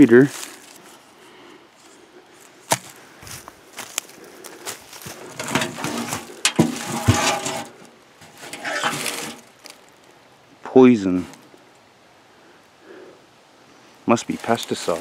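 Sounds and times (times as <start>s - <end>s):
footsteps crunching through dry leaves: 0.0s - 1.1s, 1.8s - 10.2s, 14.2s - 15.0s.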